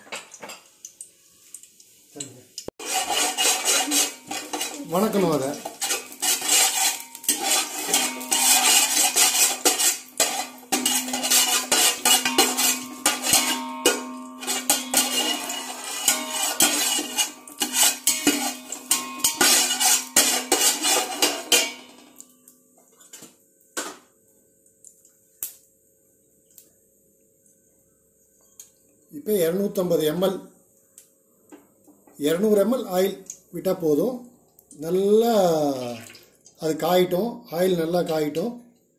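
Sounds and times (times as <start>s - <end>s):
ladle scraping metal pot: 2.8s - 22.2s.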